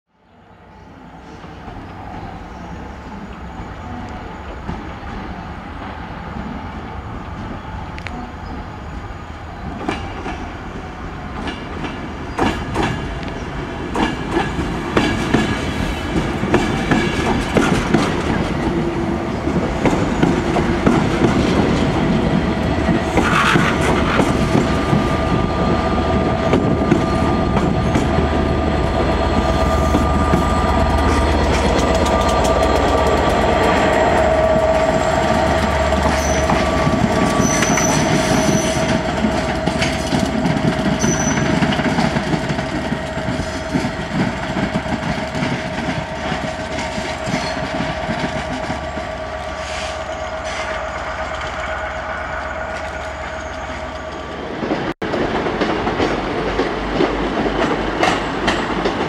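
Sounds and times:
diesel locomotive engine: 0:00.4 - 0:59.0
train wheels clicking over rail joints: 0:11.4 - 0:59.0
wheel squeal: 0:29.4 - 0:42.1.

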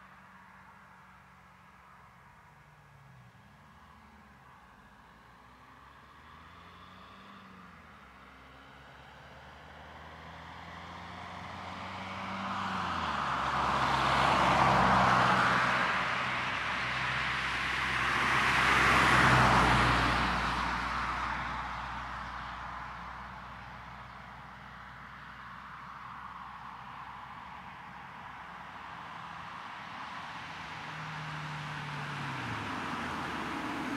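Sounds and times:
car engine passing: 0:08.4 - 0:24.0, 0:26.3 - 0:33.9.

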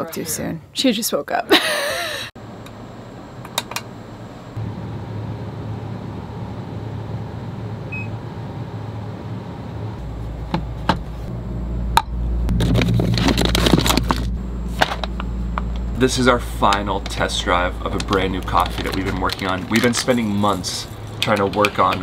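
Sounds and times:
steady low hum: 0:01.8 - 0:22.0
coffee beans clattering: 0:16.7 - 0:22.0.

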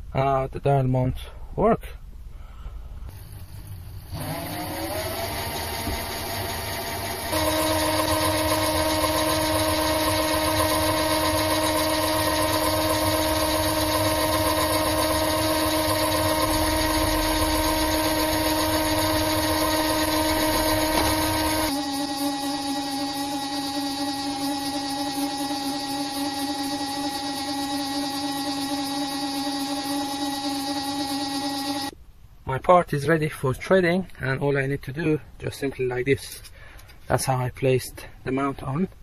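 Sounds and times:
lathe motor whine: 0:03.1 - 0:31.9.

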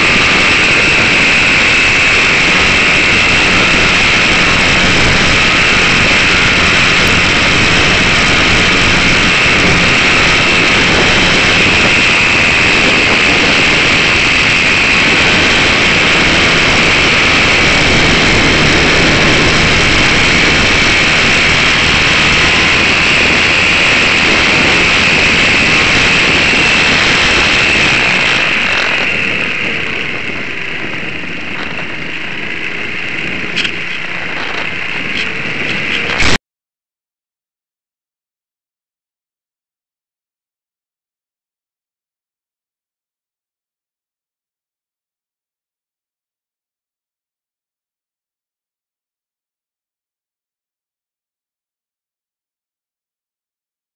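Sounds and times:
model airplane motor and propeller: 0:00.0 - 0:36.4.

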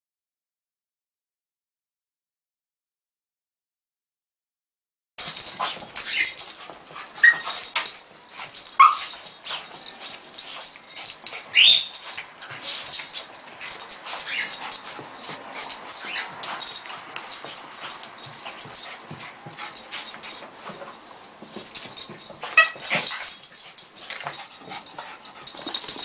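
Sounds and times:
dogs scuffling: 0:05.2 - 0:26.0
small dogs yipping and whining: 0:05.4 - 0:26.0.

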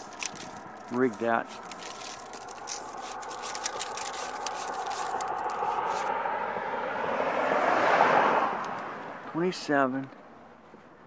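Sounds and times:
tape measure reeling in: 0:00.0 - 0:06.1
vehicle passing by: 0:00.0 - 0:09.4.

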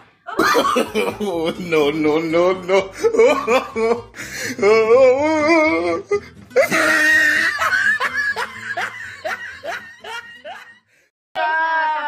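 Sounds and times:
woman laughing hard: 0:00.3 - 0:01.5, 0:03.0 - 0:04.2, 0:06.6 - 0:11.0.

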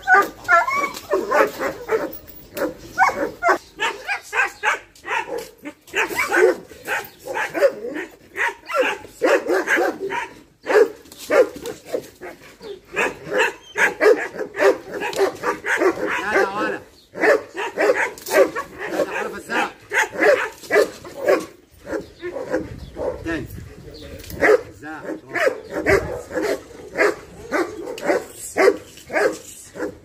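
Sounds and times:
dogs barking and yipping: 0:00.0 - 0:23.5, 0:24.2 - 0:30.0.

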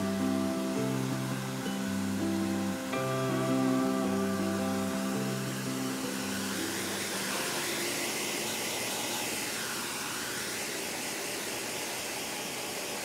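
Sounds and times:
hair dryer blowing air: 0:00.0 - 0:13.0.

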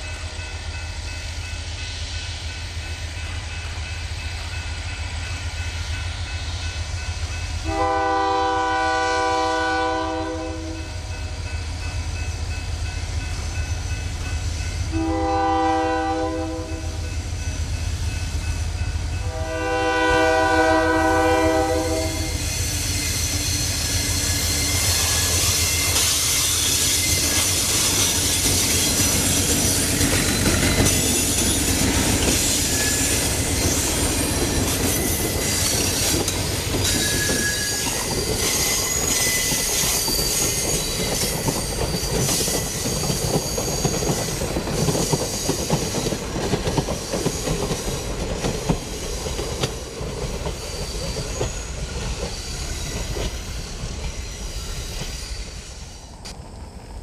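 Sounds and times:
passing train noise: 0:00.0 - 0:57.0
locomotive air horn blasts: 0:07.6 - 0:10.9, 0:14.9 - 0:17.0, 0:19.2 - 0:22.4.

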